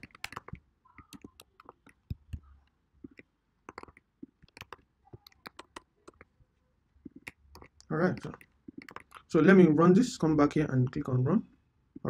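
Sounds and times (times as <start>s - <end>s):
keyboard key clicks: 0.0s - 2.4s, 3.1s - 6.2s.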